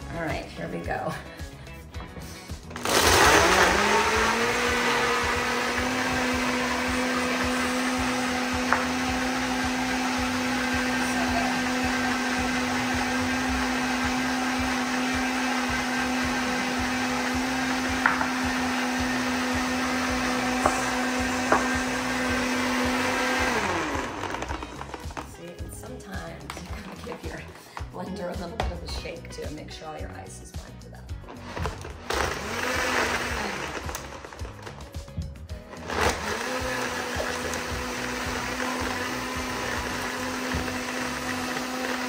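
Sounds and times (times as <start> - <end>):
blender motor running: 2.6 - 25.4, 31.2 - 35.0, 35.6 - 42.0.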